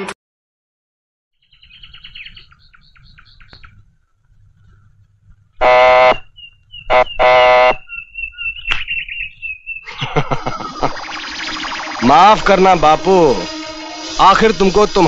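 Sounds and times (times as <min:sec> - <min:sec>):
thin high chirping: 0:10.7 - 0:15.0.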